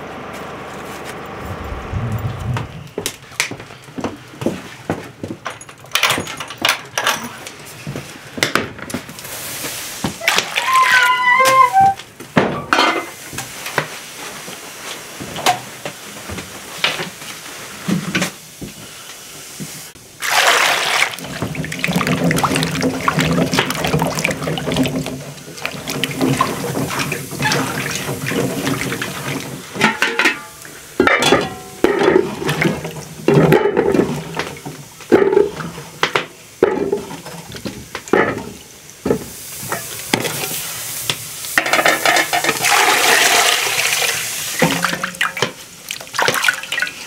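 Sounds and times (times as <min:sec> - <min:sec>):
water sloshing in metal bowl: 0:20.2 - 0:30.4.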